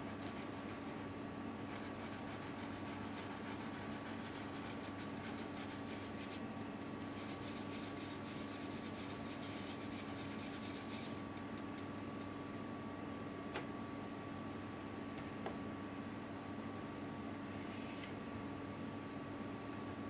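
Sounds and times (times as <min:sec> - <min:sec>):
whisk rasping against mesh sieve: 0:00.0 - 0:12.4
steady low hum: 0:00.0 - 0:20.0.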